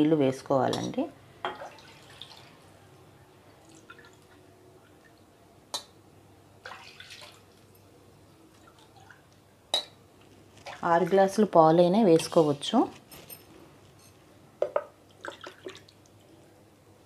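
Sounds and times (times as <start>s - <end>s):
milk pouring and splashing: 1.5s - 2.6s, 6.6s - 7.7s, 15.1s - 16.2s.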